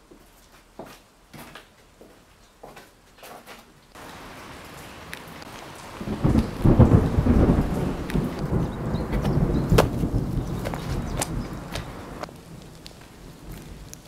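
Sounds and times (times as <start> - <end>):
steady rain hiss: 3.9 - 14.0
low rumble of thunder: 5.8 - 14.0
footsteps on rubble: 8.1 - 14.0.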